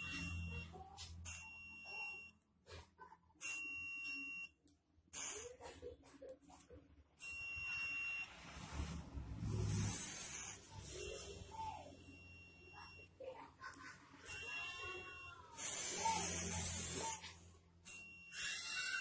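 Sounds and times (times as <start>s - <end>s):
electronic buzzer beeps: 0.0s - 2.4s, 5.2s - 5.6s, 7.2s - 8.7s, 9.4s - 13.2s, 14.0s - 19.0s.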